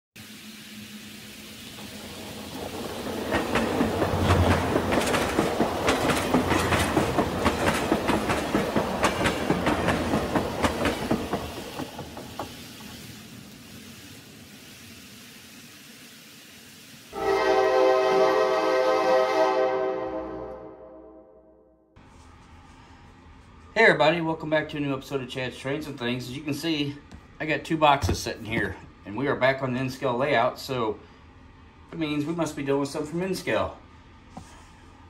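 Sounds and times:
model train wheels clicking on rails: 1.9 - 14.8.

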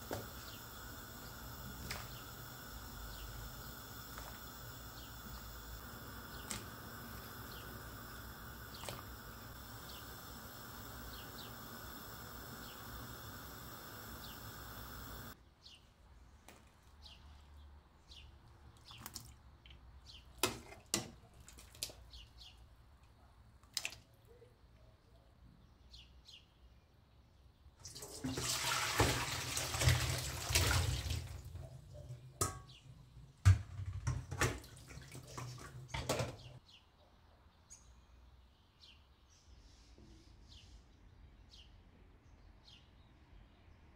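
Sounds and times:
steady hiss: 0.0 - 15.4
water pouring into metal sink: 27.8 - 32.6, 34.1 - 36.3.

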